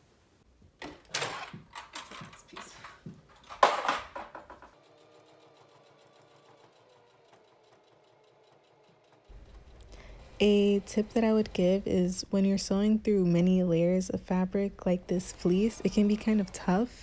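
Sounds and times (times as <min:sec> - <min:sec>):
knocks of handling: 0:00.6 - 0:04.8
sewing machine ticking: 0:04.8 - 0:13.0, 0:14.4 - 0:17.0.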